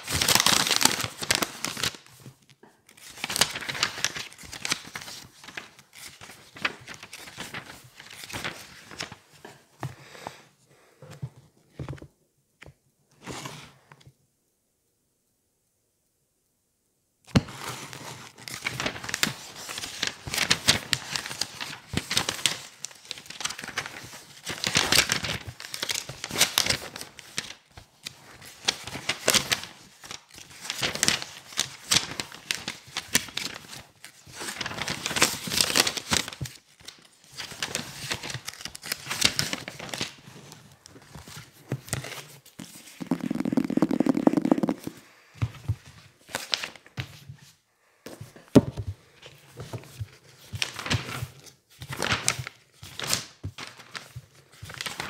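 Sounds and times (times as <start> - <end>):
book pages flipping: 0.0 - 10.0, 11.0 - 14.1, 17.3 - 55.0
pages riffled fast: 42.1 - 45.0.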